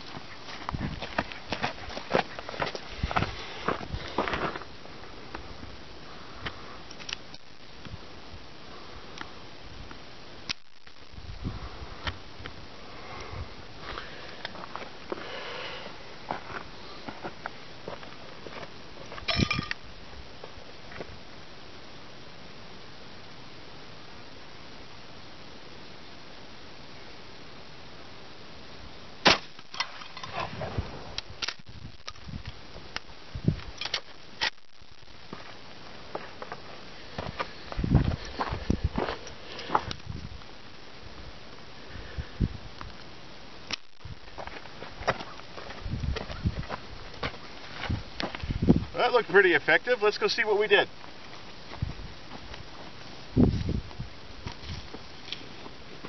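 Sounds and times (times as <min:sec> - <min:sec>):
steady outdoor hiss: 0:00.0 - 0:56.0
shotgun firing: 0:29.2 - 0:29.7.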